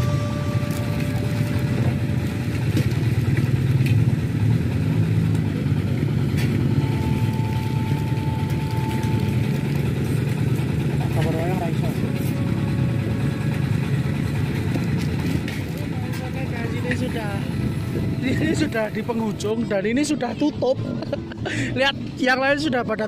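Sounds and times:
faint held tone: 0.0 - 2.7
motorcycle engines rumbling: 0.0 - 23.0.

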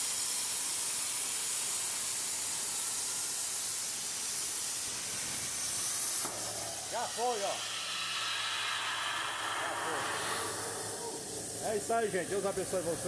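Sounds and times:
plasma torch cutting steel hiss: 0.0 - 13.0.

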